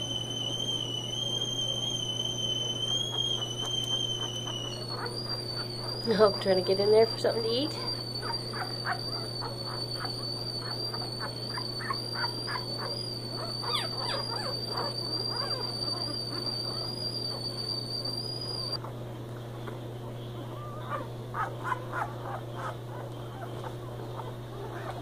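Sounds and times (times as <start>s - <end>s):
high-pitched whine: 0.0s - 18.8s
puppies squeaking and whimpering: 0.4s - 18.8s, 20.3s - 25.0s.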